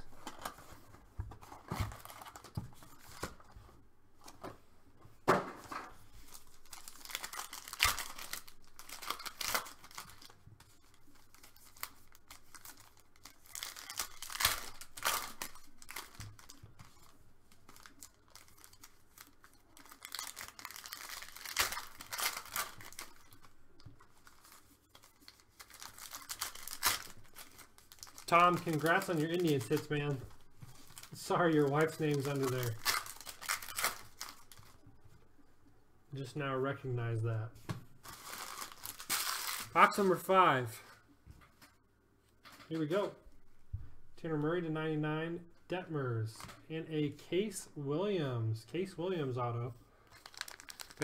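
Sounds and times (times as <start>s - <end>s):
foil wrappers tearing and crinkling: 6.2s - 34.8s, 38.0s - 40.1s, 50.1s - 51.0s.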